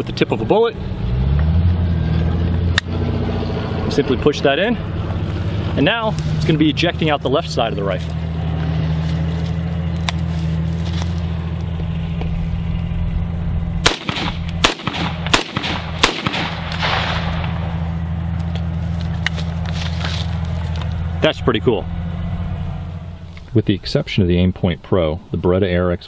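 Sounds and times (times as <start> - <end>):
rifle shots: 13.8 - 17.9.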